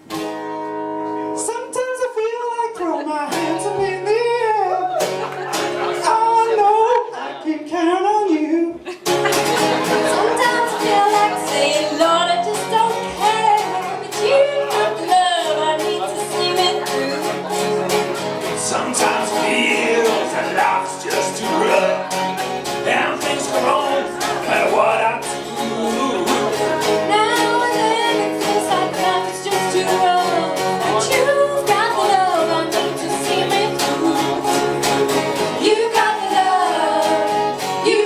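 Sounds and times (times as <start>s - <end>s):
acoustic guitar: 0.0s - 38.0s
person singing: 1.9s - 5.2s, 9.8s - 38.0s
bass guitar: 9.0s - 38.0s.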